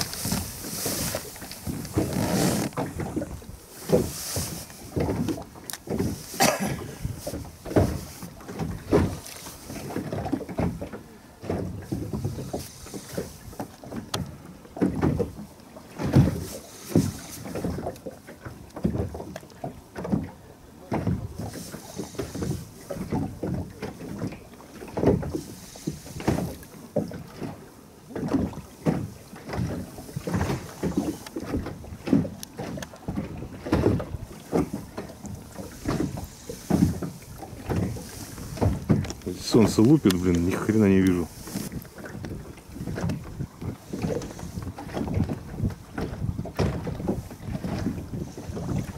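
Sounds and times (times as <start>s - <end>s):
wind buffeting microphone: 0.0s - 17.9s, 21.0s - 48.9s
water slapping against boat hull: 0.0s - 48.9s.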